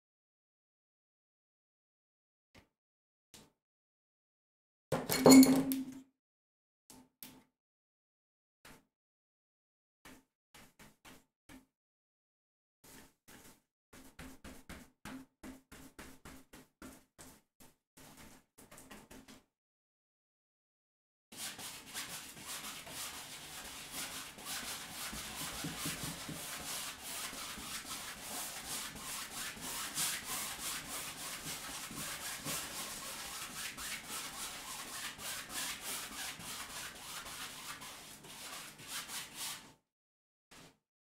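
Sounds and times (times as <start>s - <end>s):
paintbrush scrubbing on canvas: 12.9s - 14.9s, 21.4s - 39.7s.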